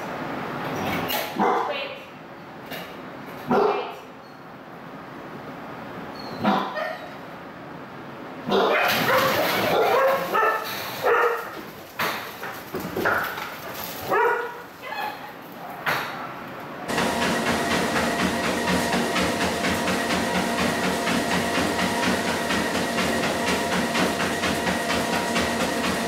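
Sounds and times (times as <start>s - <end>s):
dogs barking and yipping: 8.5s - 11.6s, 14.0s - 14.7s
dog paws trotting on treadmill: 8.8s - 15.2s, 16.9s - 26.0s
treadmill running: 16.9s - 26.0s.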